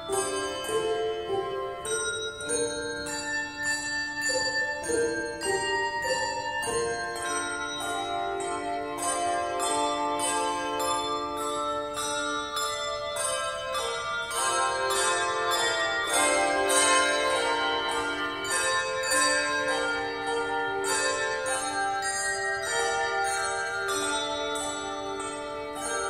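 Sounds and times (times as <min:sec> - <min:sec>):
handbell choir playing: 0:00.0 - 0:26.0.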